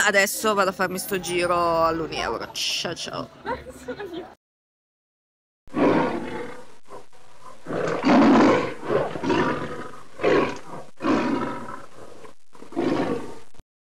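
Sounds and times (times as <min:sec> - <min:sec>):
lion roaring and grunting: 0:05.7 - 0:13.6.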